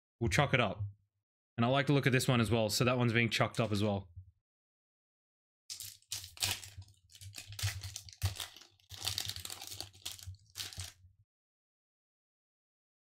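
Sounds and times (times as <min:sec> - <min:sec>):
foil wrapper crinkling and tearing: 0:05.7 - 0:11.0.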